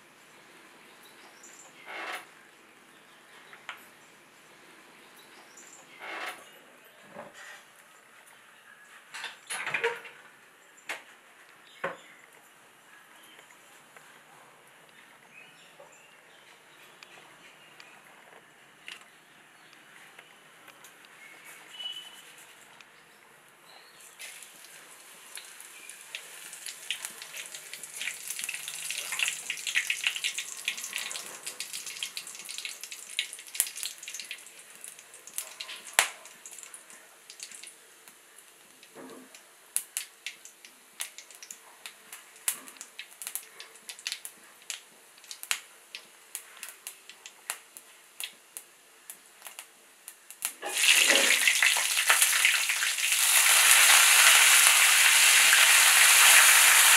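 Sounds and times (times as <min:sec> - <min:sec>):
chilli sizzling in oil: 0:24.0 - 0:39.0, 0:39.7 - 0:56.9
spices sizzling in hot oil: 0:24.1 - 0:38.9, 0:39.7 - 0:56.9
oil popping and crackling: 0:24.2 - 0:56.9.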